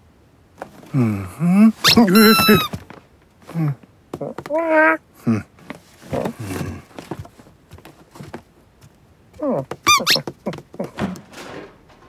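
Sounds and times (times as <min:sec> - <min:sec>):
cartoon cat chirrup: 0:01.8 - 0:02.7, 0:09.9 - 0:10.2
short high squeak: 0:01.8 - 0:02.8, 0:09.9 - 0:10.2.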